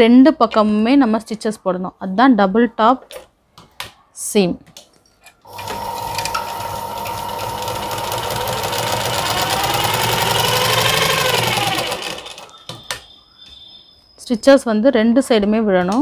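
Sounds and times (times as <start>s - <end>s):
sewing machine stitching: 5.5s - 12.6s.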